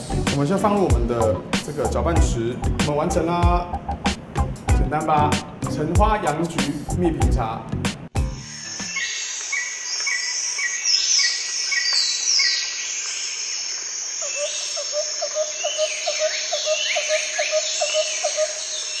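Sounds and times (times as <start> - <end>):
birds chirping and whistling: 8.2 - 19.0.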